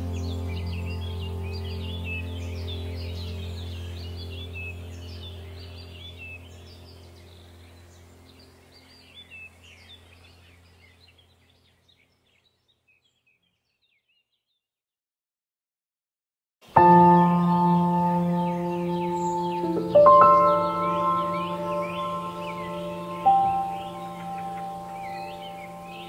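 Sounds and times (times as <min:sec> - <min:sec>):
low drone: 0:00.0 - 0:10.7, 0:16.8 - 0:26.0
birdsong chirps: 0:00.0 - 0:14.7, 0:16.6 - 0:26.0.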